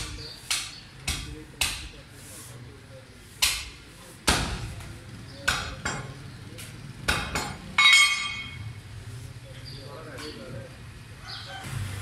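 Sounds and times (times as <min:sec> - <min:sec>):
cleaver chopping on wooden block: 0:00.0 - 0:02.0, 0:03.4 - 0:06.1, 0:07.1 - 0:07.6
ringing metallic clang: 0:07.3 - 0:08.8.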